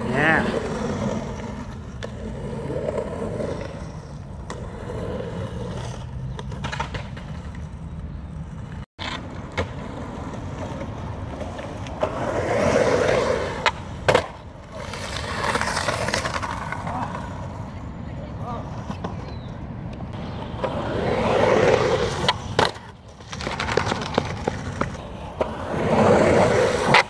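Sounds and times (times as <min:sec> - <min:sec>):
skateboard wheels rolling on concrete: 0:00.0 - 0:27.0
skateboard slamming concrete: 0:04.4 - 0:07.6, 0:09.0 - 0:17.7, 0:20.2 - 0:27.0.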